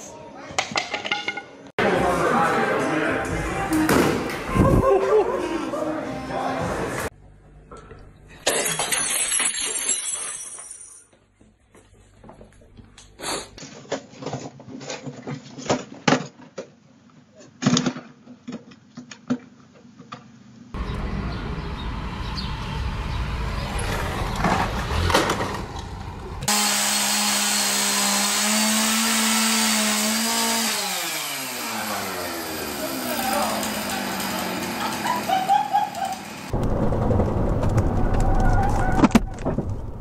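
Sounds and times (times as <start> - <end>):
chainsaw running at high revs: 26.4 - 35.5.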